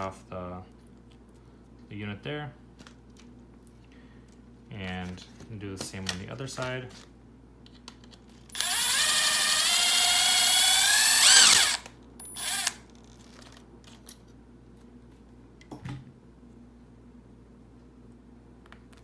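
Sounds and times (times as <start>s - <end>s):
power drill whine: 8.5s - 12.8s.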